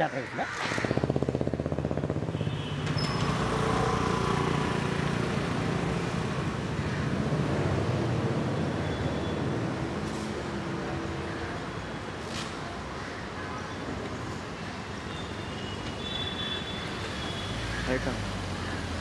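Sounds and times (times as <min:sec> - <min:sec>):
street traffic: 0:00.0 - 0:19.0
motorbike engine passing: 0:00.4 - 0:06.3.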